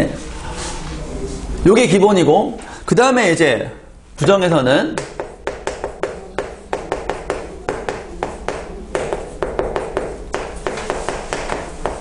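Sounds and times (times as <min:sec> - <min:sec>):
chalk tapping and scratching: 0:05.0 - 0:12.0.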